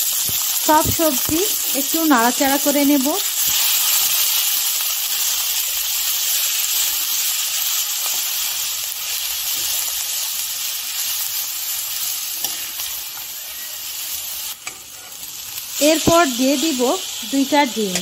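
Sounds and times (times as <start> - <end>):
vegetables sizzling in hot oil: 0.0 - 18.0
metal spatula scraping pan: 14.6 - 15.3.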